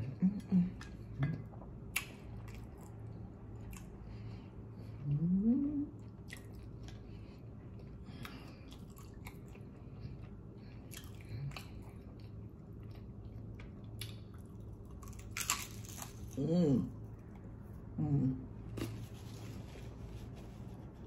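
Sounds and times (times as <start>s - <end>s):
person chewing food: 0.7s - 5.2s, 5.9s - 16.4s
person humming: 5.0s - 6.0s, 18.0s - 18.4s.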